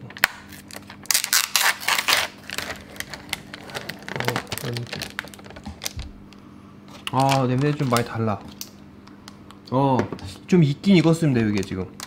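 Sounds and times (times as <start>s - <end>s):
plastic tray and film crinkling: 0.2s - 9.4s.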